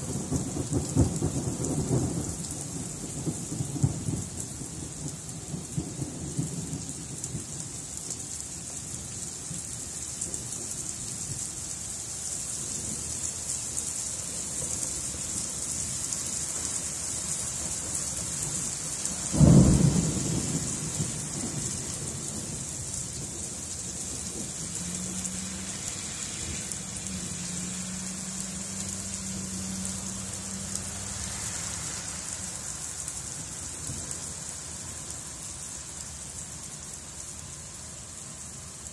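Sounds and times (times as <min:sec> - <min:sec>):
rain falling on pavement: 0:00.0 - 0:38.9
low thunder rumble: 0:19.3 - 0:25.6
sharp thunderclap: 0:19.4 - 0:22.5.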